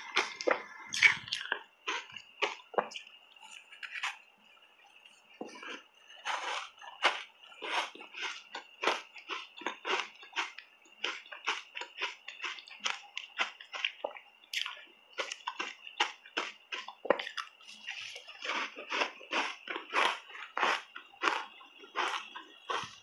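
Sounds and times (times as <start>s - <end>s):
wet chewing and lip-smacking: 0.0s - 4.3s, 5.1s - 23.0s
biting soft cake: 5.5s - 23.0s.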